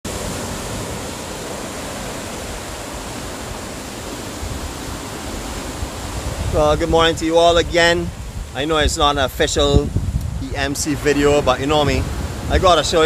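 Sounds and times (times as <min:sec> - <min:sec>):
surf breaking on beach: 0:00.0 - 0:13.0
wind on microphone: 0:00.1 - 0:13.0.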